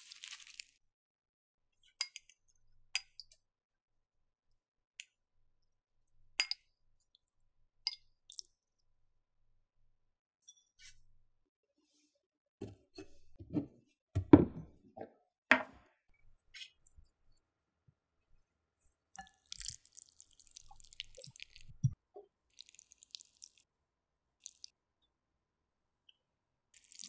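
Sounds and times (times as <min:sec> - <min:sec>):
meat squishing and crackling: 0:00.0 - 0:00.8, 0:19.3 - 0:21.8.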